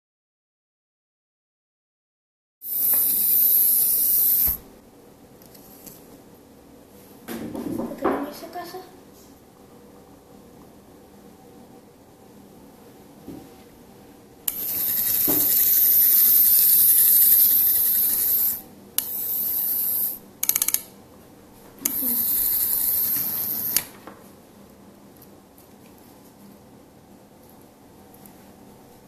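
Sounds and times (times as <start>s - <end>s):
model locomotive motor whirr: 2.7s - 4.6s, 14.5s - 20.8s, 21.8s - 23.9s
rattle of clicks: 20.4s - 20.9s.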